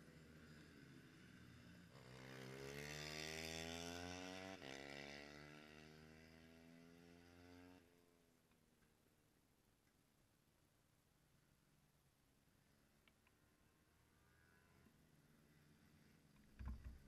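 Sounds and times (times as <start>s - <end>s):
motorcycle engine accelerating: 0.0s - 8.0s.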